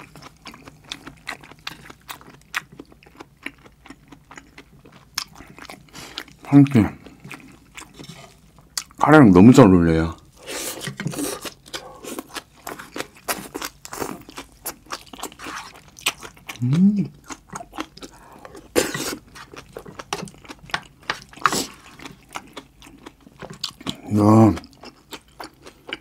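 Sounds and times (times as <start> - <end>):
wet chewing and crunching: 0.0 - 9.0, 10.1 - 26.0
person humming: 16.6 - 17.1.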